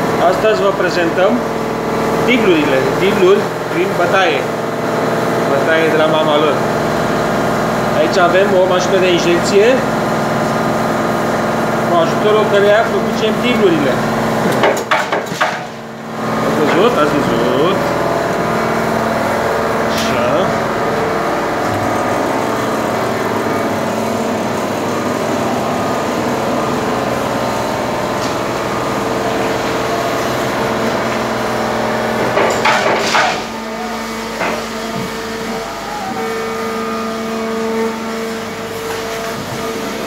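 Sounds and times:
machine humming: 0.0s - 40.0s
machine clatter: 14.2s - 15.9s, 29.5s - 33.6s.

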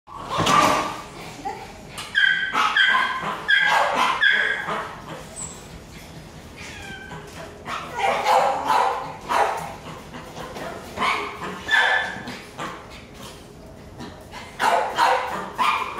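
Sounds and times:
puppy yipping: 2.1s - 5.6s, 6.6s - 9.6s, 11.0s - 12.3s
puppy whimpering: 6.6s - 8.2s.

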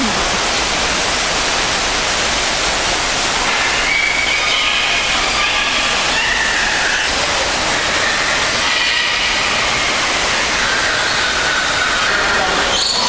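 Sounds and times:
waterfall pouring into pool: 0.0s - 13.0s.

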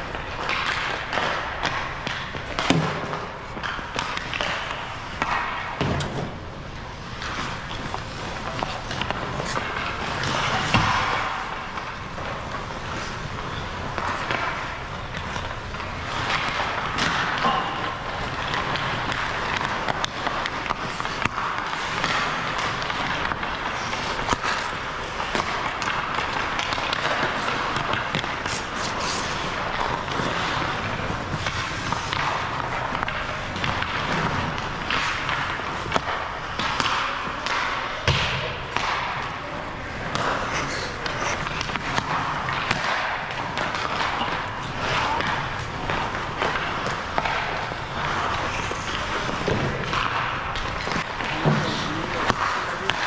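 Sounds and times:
hockey sticks and pucks knocking: 0.0s - 53.0s
puck hitting the boards: 0.0s - 53.0s
skates scraping on ice: 0.0s - 53.0s.

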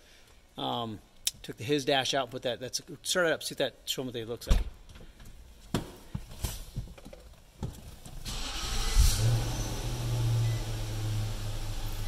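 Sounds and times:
car engine idling: 8.3s - 12.0s.

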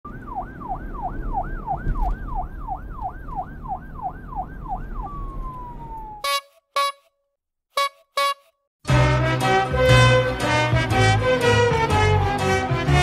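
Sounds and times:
emergency siren yelping: 0.1s - 7.0s
low rumble: 0.2s - 6.2s.

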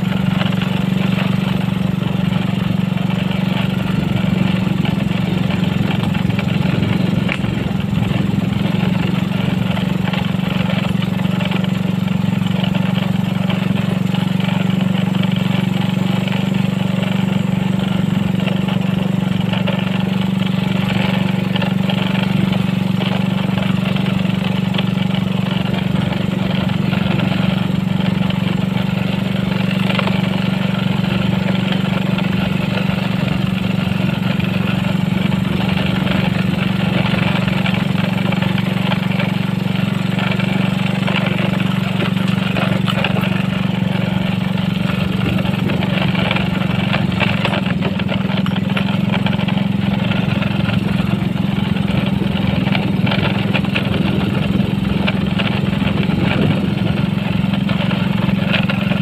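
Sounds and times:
motorcycle engine droning: 0.0s - 59.0s.

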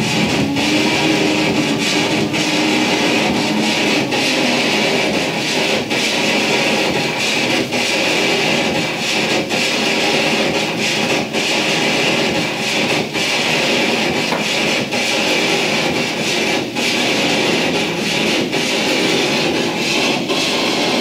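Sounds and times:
wavering low tones: 0.0s - 15.0s
noise music wash: 0.0s - 21.0s.

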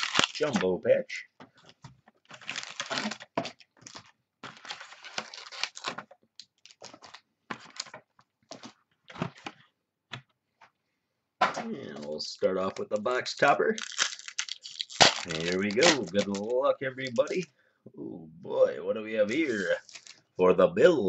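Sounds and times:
plastic wrap crinkling: 0.0s - 0.7s, 1.6s - 9.7s, 12.0s - 17.4s, 19.3s - 20.3s.

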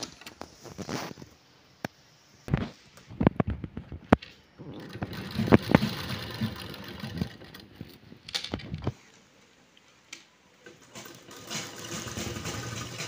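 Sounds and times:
sewing machine running: 4.6s - 7.8s, 10.8s - 13.0s.

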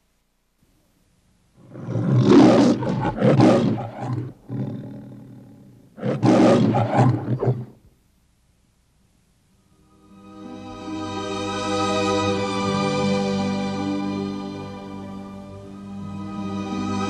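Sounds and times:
lion roaring: 1.6s - 7.8s.

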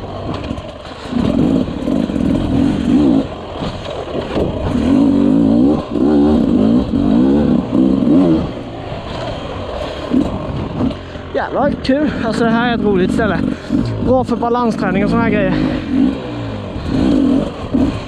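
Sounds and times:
dirt bike engine revving: 0.0s - 18.0s.

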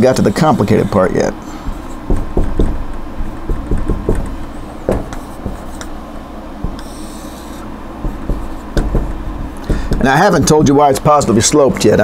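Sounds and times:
air conditioner hum: 0.0s - 12.0s
marker tapping on whiteboard: 1.7s - 6.0s, 6.6s - 10.8s, 11.5s - 12.0s
marker squeaking on whiteboard: 4.5s - 6.0s, 6.7s - 9.0s.

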